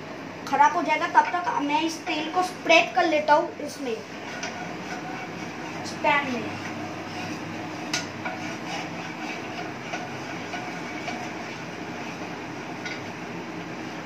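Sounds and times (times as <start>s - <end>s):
steady hum: 0.0s - 14.0s
wooden spatula scraping frying pan: 4.0s - 14.0s.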